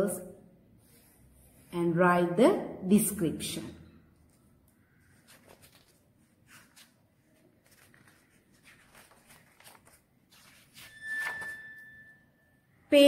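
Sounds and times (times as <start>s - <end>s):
book pages turning: 4.1s - 11.9s
paper rustling and tapping: 4.2s - 11.6s.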